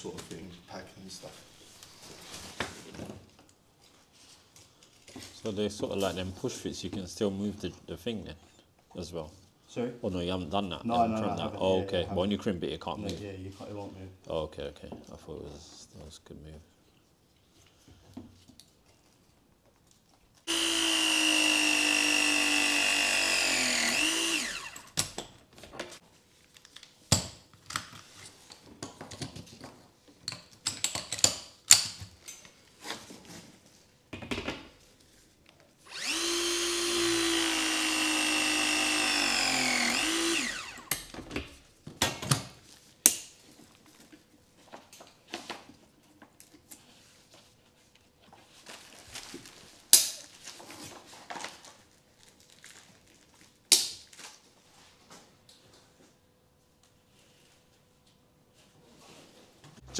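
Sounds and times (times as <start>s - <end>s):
press tool motor running: 20.5s - 25.0s, 35.9s - 41.0s.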